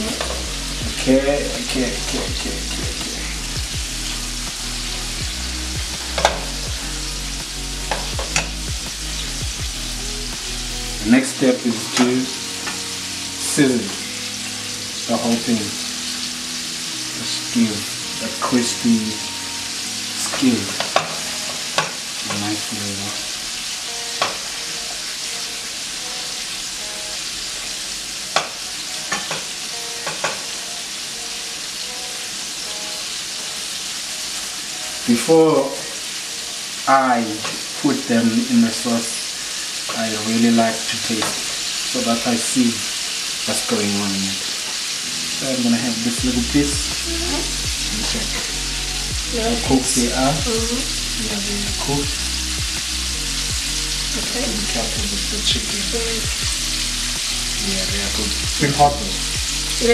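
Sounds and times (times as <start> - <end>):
chicken deep-frying in oil: 5.0 - 46.9.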